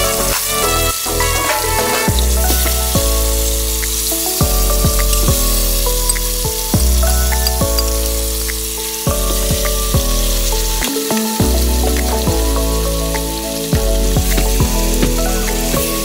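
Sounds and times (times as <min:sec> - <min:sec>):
bass note: 0:00.0 - 0:08.5
background music with chords: 0:00.0 - 0:16.0
meat sizzling in hot oil: 0:00.0 - 0:16.0.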